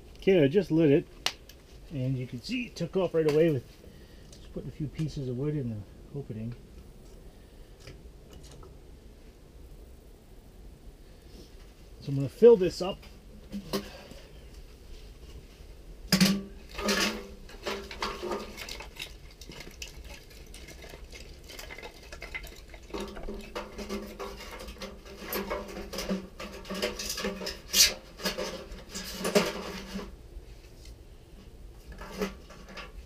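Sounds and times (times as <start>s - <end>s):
kindling sticks clattering: 16.1s - 30.1s.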